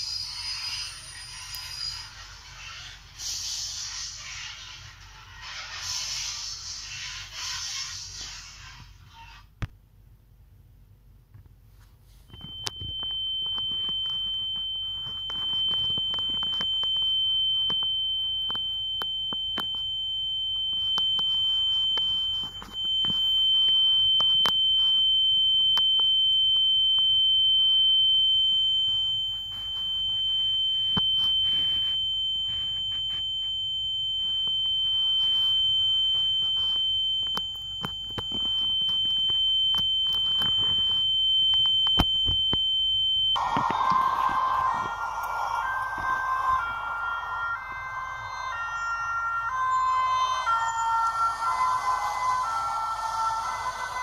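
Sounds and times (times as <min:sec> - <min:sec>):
high-pitched electronic tone: 0:43.4 - 0:54.0.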